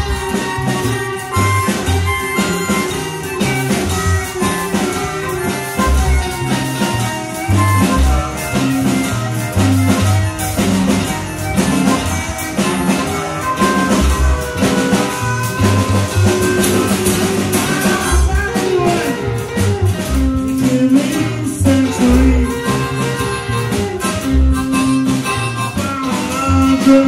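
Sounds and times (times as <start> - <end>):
bass line: 0.0 - 27.0
drum kit: 0.0 - 27.0
electric guitar: 0.0 - 27.0
harmonica holding notes: 0.0 - 27.0.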